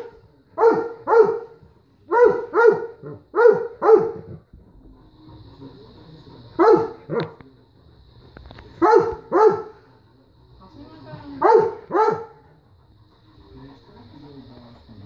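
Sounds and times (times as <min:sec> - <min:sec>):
dog barking: 0:00.0 - 0:04.4, 0:06.6 - 0:07.4, 0:08.8 - 0:09.8, 0:11.2 - 0:12.4.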